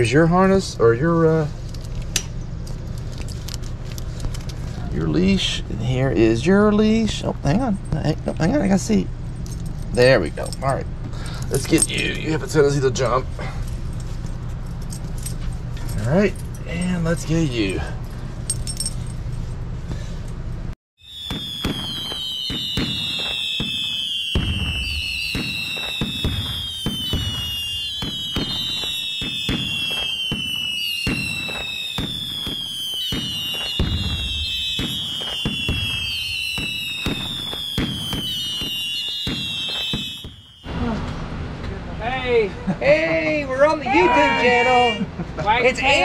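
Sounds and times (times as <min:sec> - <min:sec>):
firework whistles gliding down: 0:21.0 - 0:40.8
firework pops and bangs: 0:21.1 - 0:40.6.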